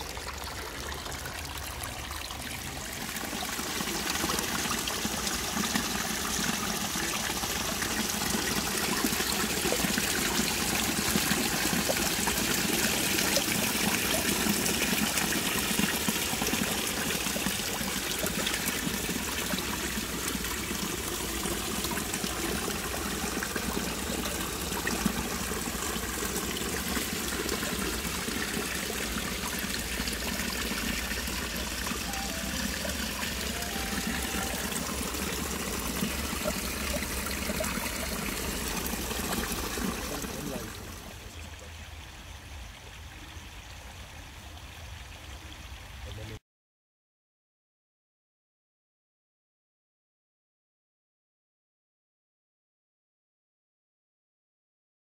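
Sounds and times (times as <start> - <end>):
water splashing into pool: 0.0 - 41.4.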